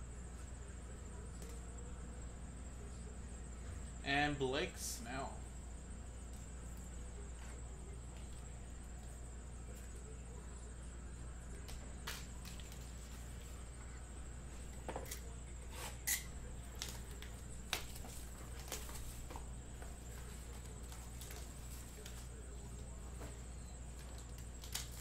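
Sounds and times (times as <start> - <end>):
faint high whine: 0.0 - 25.0
low electrical hum: 0.0 - 25.0
plastic rustling and clicking: 23.9 - 25.0
plastic snapping: 24.2 - 25.0.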